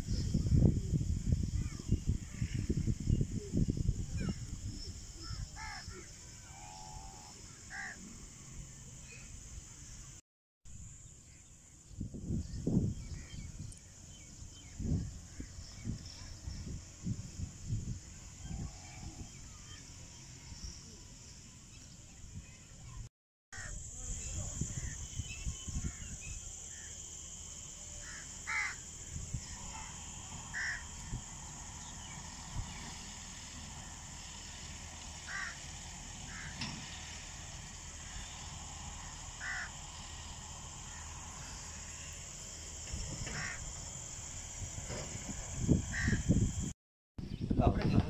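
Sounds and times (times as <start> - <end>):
wind rumble on microphone: 0.0 - 6.0, 11.8 - 19.8, 23.9 - 26.9, 29.0 - 33.1, 42.8 - 48.0
high-pitched insect drone: 0.1 - 10.1, 23.6 - 46.7
crows cawing: 5.6 - 5.9, 7.7 - 8.0, 28.0 - 28.8, 30.5 - 30.9, 35.3 - 35.7, 36.3 - 36.6, 39.4 - 39.8, 43.3 - 43.7, 45.9 - 46.2.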